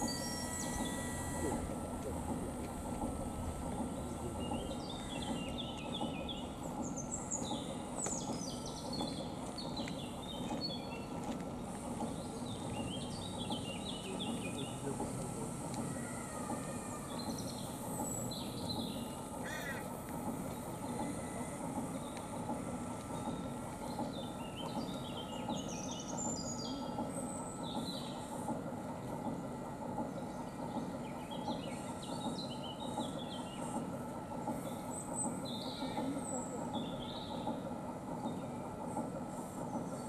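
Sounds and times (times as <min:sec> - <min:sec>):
faint steady whine: 0:00.0 - 0:40.0
outdoor background hum: 0:00.0 - 0:40.0
small birds chirping: 0:03.7 - 0:15.4, 0:17.0 - 0:19.9.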